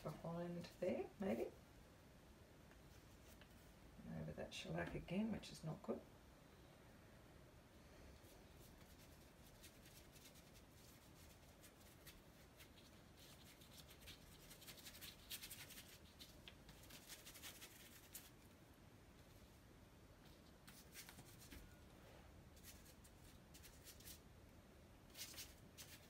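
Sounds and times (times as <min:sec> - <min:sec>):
paintbrush scratching on paper: 0:08.2 - 0:18.4.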